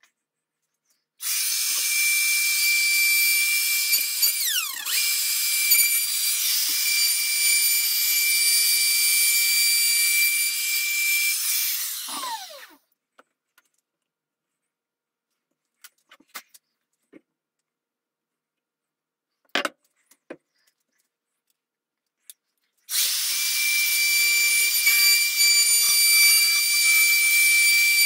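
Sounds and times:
wood router whining: 0:01.2 - 0:12.8, 0:22.9 - 0:28.0.

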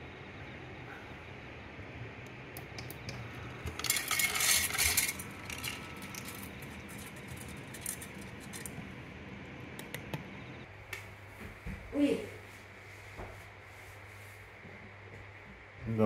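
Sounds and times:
kibble pouring into bowl: 0:03.7 - 0:08.8.

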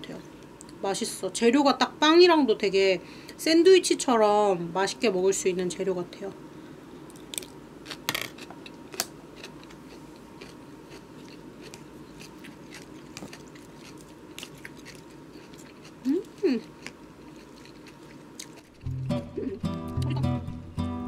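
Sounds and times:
crunchy chewing of vegetables: 0:07.1 - 0:19.0.

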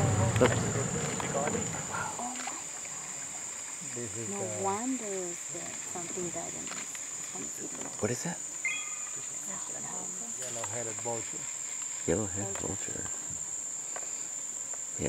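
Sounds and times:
faint voices talking: 0:00.0 - 0:06.6
insects droning: 0:00.0 - 0:15.0
short high chirp: 0:08.7 - 0:09.2.

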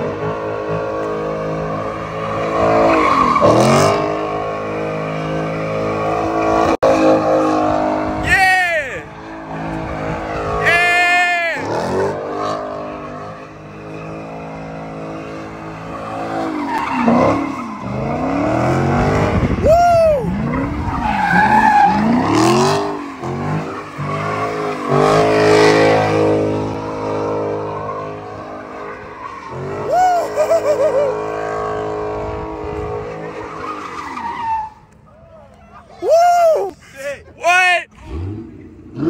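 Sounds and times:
car engine revving hard: 0:00.0 - 0:08.2, 0:11.5 - 0:19.6, 0:20.4 - 0:29.9, 0:37.9 - 0:39.0
tyres skidding and squealing: 0:00.0 - 0:39.0.

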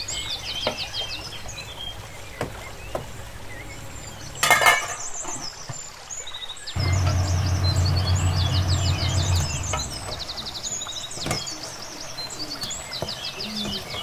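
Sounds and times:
small birds chirping: 0:00.0 - 0:14.0
low steady hum: 0:06.8 - 0:10.6.

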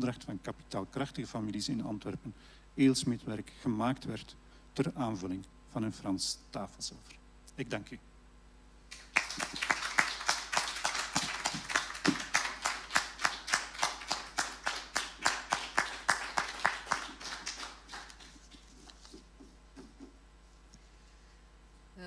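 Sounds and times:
small audience applause: 0:08.9 - 0:19.1.

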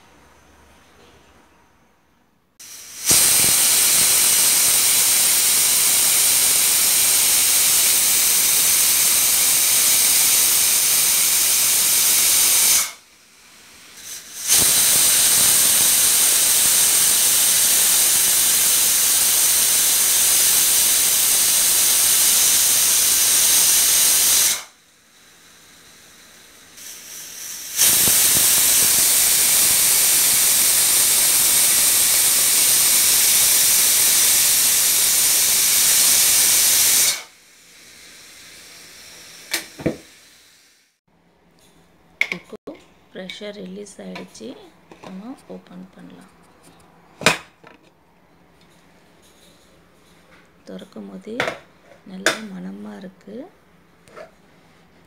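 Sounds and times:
pressure cooker whistling steam: 0:02.6 - 0:13.0, 0:13.8 - 0:41.0.

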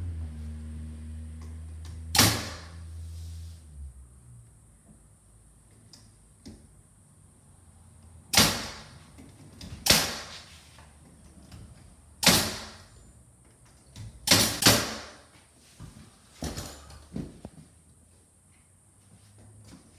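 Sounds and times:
nail gun shots: 0:02.1 - 0:02.7, 0:08.3 - 0:08.9, 0:09.8 - 0:10.3, 0:12.2 - 0:12.8, 0:14.2 - 0:15.2.

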